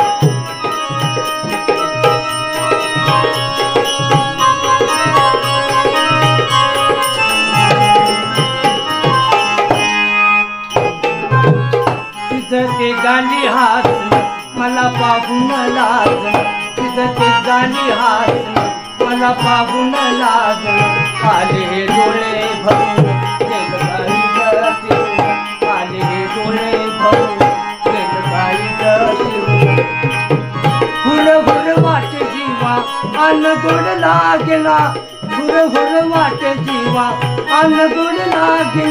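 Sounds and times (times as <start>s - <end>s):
electronic keyboard melody: 0.0s - 38.9s
hand drum beat: 10.8s - 12.9s.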